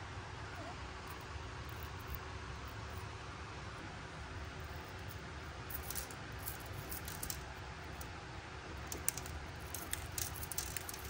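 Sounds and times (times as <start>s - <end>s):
chips ticking on plastic plate: 8.9s - 11.0s.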